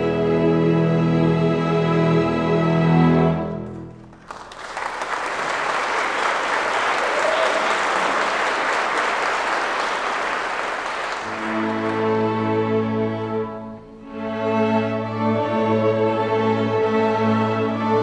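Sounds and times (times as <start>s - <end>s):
string orchestra chords: 0.0s - 4.2s, 10.5s - 18.0s
audience applauding: 3.6s - 12.5s.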